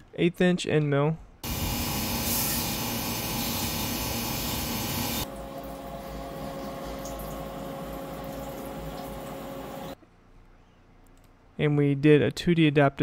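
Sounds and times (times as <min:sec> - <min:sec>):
coolant spray hissing: 0:01.4 - 0:05.3
machine hum with steady tone: 0:01.4 - 0:11.4.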